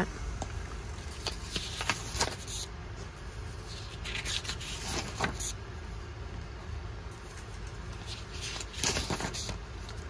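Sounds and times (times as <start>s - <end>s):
steady low hum: 0.0s - 10.0s
paper pages rustling: 1.0s - 5.6s, 7.1s - 10.0s.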